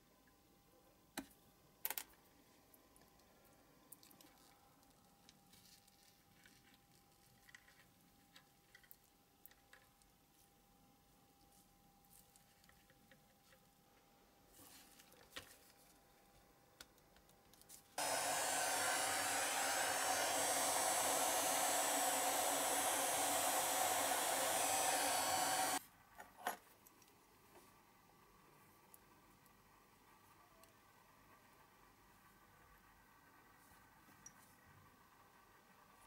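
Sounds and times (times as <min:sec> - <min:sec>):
small electric blower running: 0:18.0 - 0:25.8.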